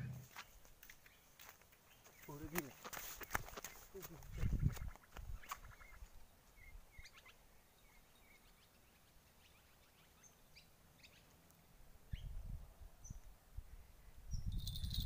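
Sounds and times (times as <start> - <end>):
faint bird chirps: 4.6 - 11.3.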